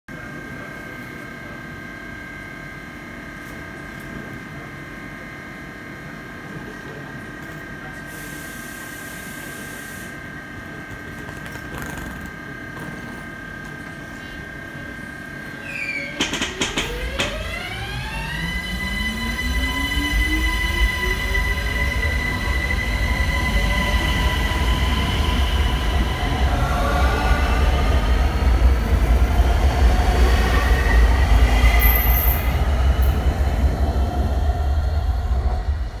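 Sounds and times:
traction drive rising whines: 0:15.5 - 0:36.0
high squeal: 0:15.6 - 0:16.2
train wheels running: 0:15.9 - 0:36.0.

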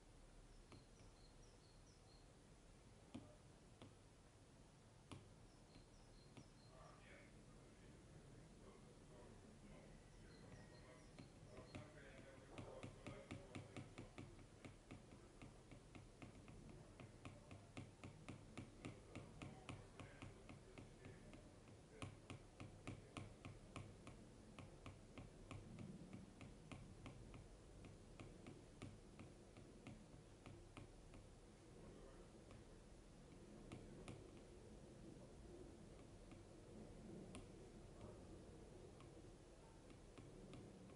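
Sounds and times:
stylus tapping on glass screen: 0:00.6 - 0:02.2, 0:03.1 - 0:04.0, 0:05.0 - 0:06.7, 0:10.1 - 0:31.3, 0:33.3 - 0:34.5, 0:36.0 - 0:36.5, 0:37.1 - 0:38.2, 0:38.9 - 0:40.9.

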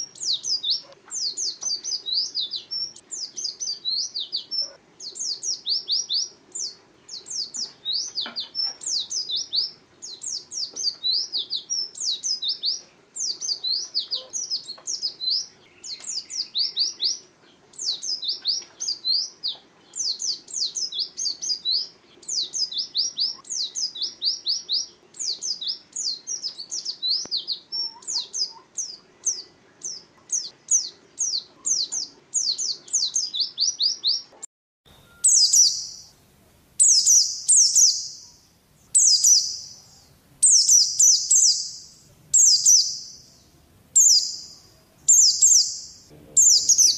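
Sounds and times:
small bird singing fast song: 0:00.0 - 0:34.3, 0:34.9 - 0:36.2, 0:36.8 - 0:46.9.

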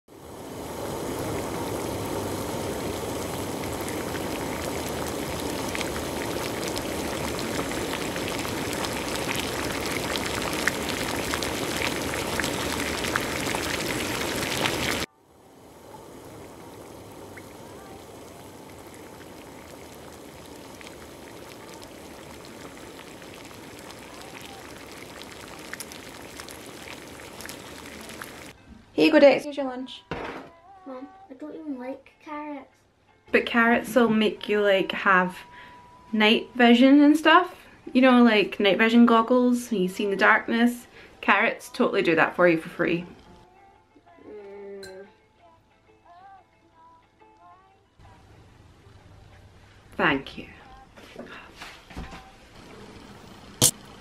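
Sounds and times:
water boiling in a pan: 0:00.1 - 0:28.6, 0:33.4 - 0:35.6, 0:36.2 - 0:43.3, 0:51.2 - 0:54.0
quiet steady hiss: 0:00.1 - 0:43.5.

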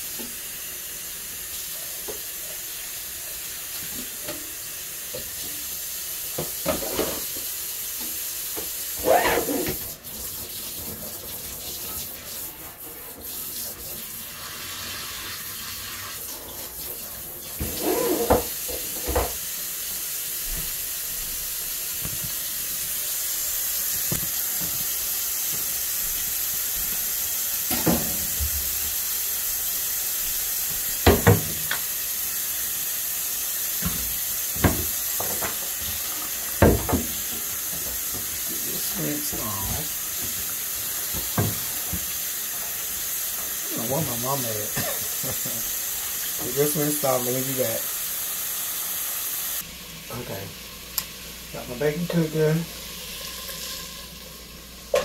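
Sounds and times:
knocks and clatters in sink: 0:06.4 - 0:07.5, 0:17.6 - 0:19.4, 0:31.0 - 0:31.8, 0:33.8 - 0:36.0, 0:36.6 - 0:38.3, 0:41.1 - 0:42.1
faucet running into metal sink: 0:33.7 - 0:48.0.

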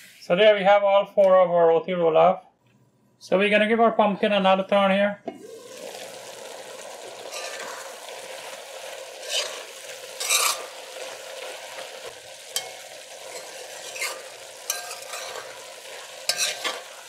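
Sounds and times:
pumpkin sizzling in a pot: 0:05.3 - 0:17.0
metal spoon scraping a pot: 0:07.3 - 0:07.8, 0:09.2 - 0:10.8, 0:12.6 - 0:17.0.

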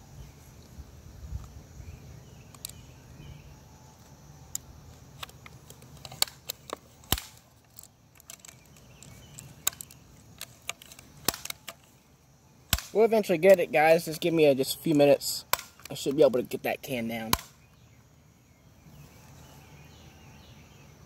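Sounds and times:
bb gun clicks and knocks: 0:05.2 - 0:11.9.

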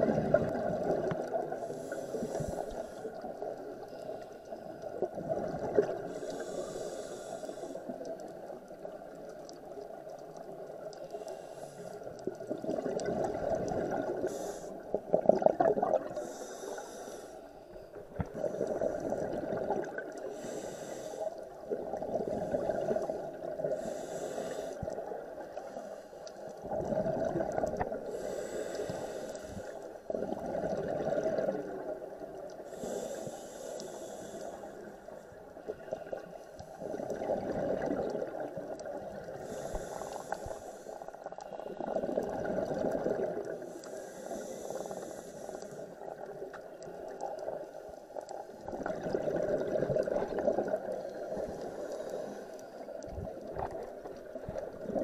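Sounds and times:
gurgle of exhaled bubbles: 0:00.0 - 0:02.6, 0:04.9 - 0:06.6, 0:12.2 - 0:16.3, 0:18.1 - 0:20.2, 0:21.7 - 0:23.8, 0:26.6 - 0:28.2, 0:30.1 - 0:32.2, 0:36.8 - 0:39.8, 0:41.7 - 0:43.6, 0:48.6 - 0:51.8, 0:52.8 - 0:55.0
regulator inhale hiss: 0:01.5 - 0:04.6, 0:06.0 - 0:08.1, 0:11.0 - 0:12.2, 0:14.2 - 0:15.0, 0:16.1 - 0:19.2, 0:20.2 - 0:21.5, 0:22.3 - 0:26.5, 0:28.0 - 0:30.0, 0:32.6 - 0:36.8, 0:39.3 - 0:42.0, 0:43.6 - 0:46.2, 0:51.0 - 0:53.0.

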